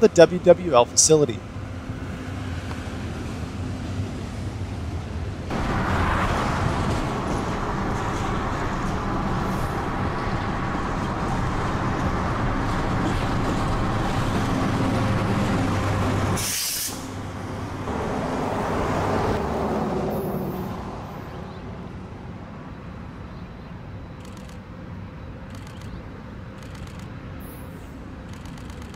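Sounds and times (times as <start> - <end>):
train wheels rumbling on rails: 0.0 - 21.0, 26.5 - 28.9
diesel locomotive running: 0.0 - 28.9
brief hiss: 16.4 - 17.1.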